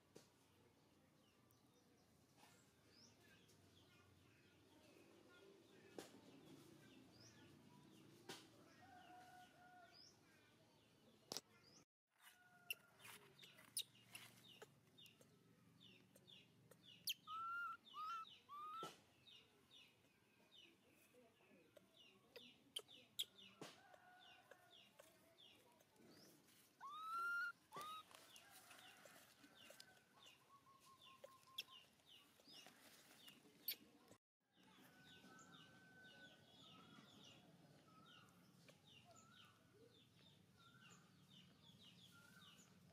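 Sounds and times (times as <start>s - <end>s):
birds chirping: 12.6s - 34.1s.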